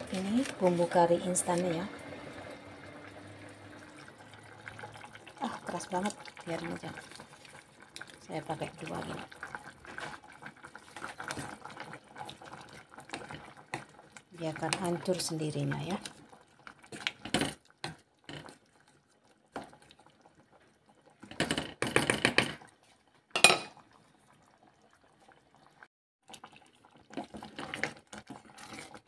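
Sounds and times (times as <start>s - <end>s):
wooden spoon scraping a pot: 0.0s - 1.8s, 8.7s - 16.2s, 27.1s - 29.0s.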